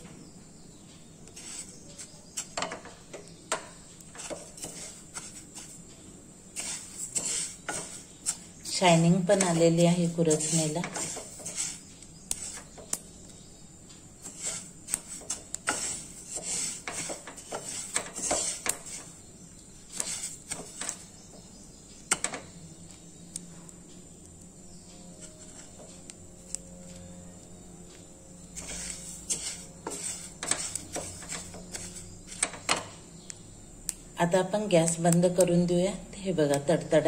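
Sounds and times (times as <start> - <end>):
seeds crackling and popping: 0.8 - 37.0
wooden spatula scraping pan: 1.2 - 13.0, 14.2 - 21.5, 25.1 - 26.6, 28.4 - 32.9.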